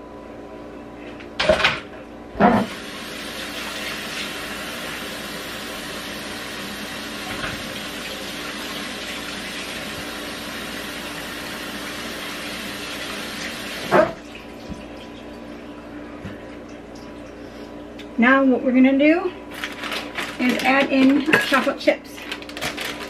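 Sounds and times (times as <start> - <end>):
tap water running: 2.6 - 17.6.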